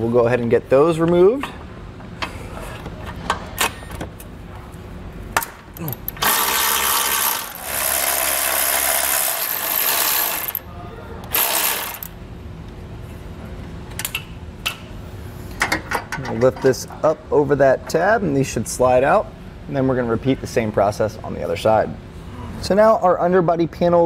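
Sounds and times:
electric ratchet spinning: 0:06.1 - 0:10.6, 0:11.3 - 0:12.2.

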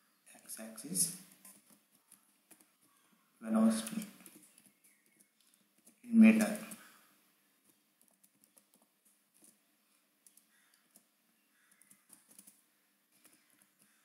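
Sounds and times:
typing on keyboard: 0:01.3 - 0:02.7, 0:03.8 - 0:06.8, 0:07.6 - 0:09.6, 0:10.2 - 0:12.6, 0:13.2 - 0:13.9.

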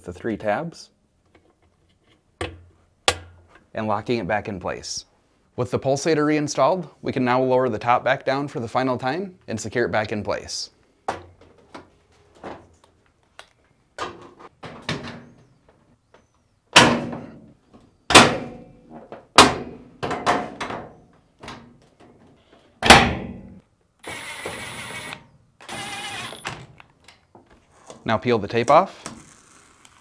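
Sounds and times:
cordless drill driving screw: 0:24.0 - 0:26.6.

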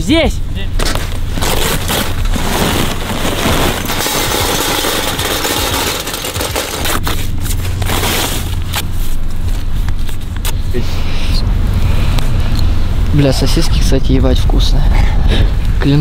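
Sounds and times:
charcoal clattering into metal grill: 0:02.9 - 0:07.0.

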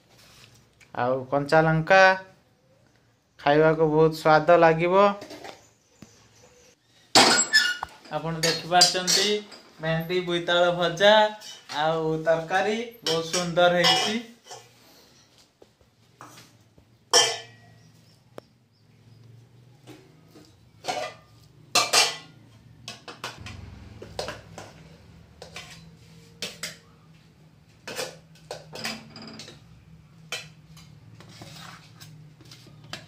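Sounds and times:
brass plate and steel bowls clinking: 0:17.1 - 0:17.9.

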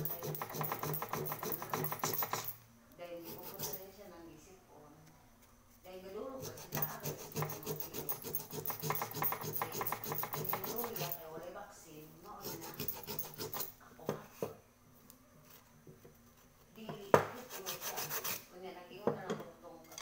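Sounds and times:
rubbing on a metal pot: 0:00.0 - 0:02.6, 0:03.2 - 0:03.9, 0:06.3 - 0:11.2, 0:12.3 - 0:13.8, 0:17.4 - 0:18.5.

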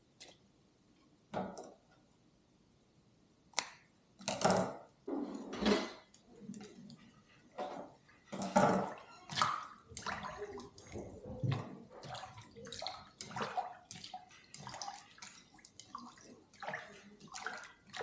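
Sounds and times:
water splashing and sloshing: 0:06.0 - 0:18.0.

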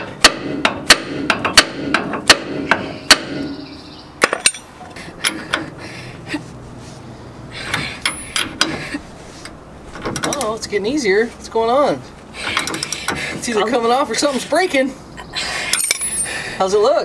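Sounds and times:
hammer striking steel puller: 0:00.0 - 0:03.5.

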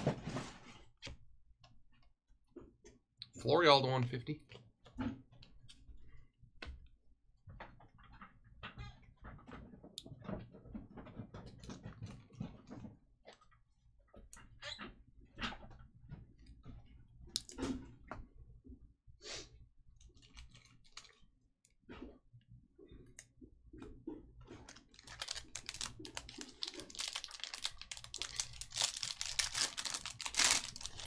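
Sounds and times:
foil wrapper crinkling: 0:20.1 - 0:21.2, 0:24.6 - 0:31.0
trading cards being handled: 0:24.7 - 0:31.0.

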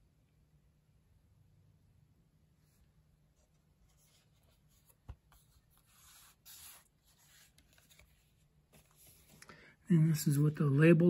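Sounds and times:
cardboard record sleeve rubbing: 0:03.4 - 0:09.4.

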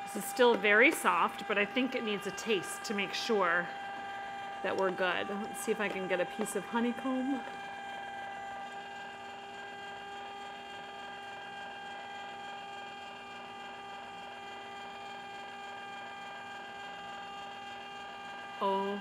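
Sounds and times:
ice cream maker motor hum: 0:00.0 - 0:19.0.

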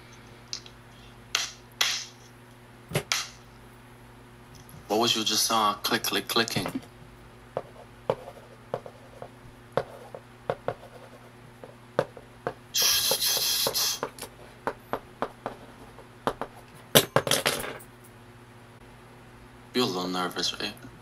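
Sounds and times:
low steady hum: 0:00.0 - 0:21.0
loud hiss: 0:12.7 - 0:14.1.

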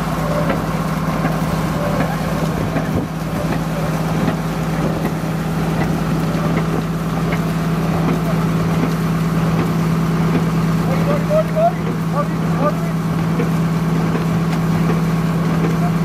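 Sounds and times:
motorboat engine droning: 0:00.0 - 0:16.0
water washing: 0:00.0 - 0:16.0.

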